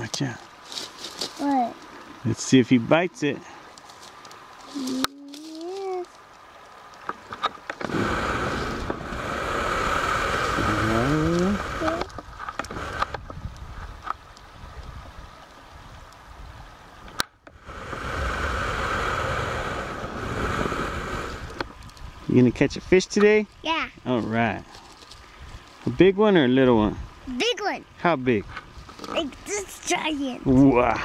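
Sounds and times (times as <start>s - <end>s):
river flowing: 0.0s - 31.0s
wind buffeting microphone: 7.8s - 16.8s, 17.6s - 23.0s, 26.7s - 27.4s.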